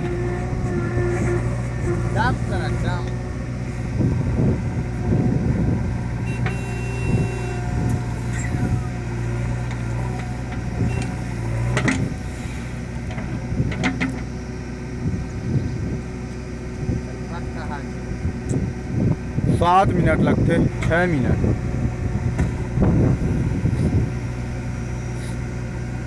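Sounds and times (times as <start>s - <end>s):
diesel engine running: 0.0s - 26.0s
thin hydraulic whine: 6.2s - 9.0s, 11.8s - 13.0s.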